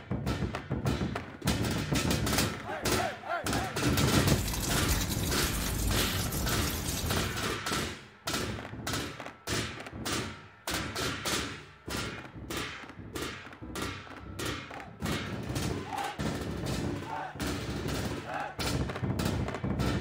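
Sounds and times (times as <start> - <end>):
sharp bangs: 1.4 - 8.0.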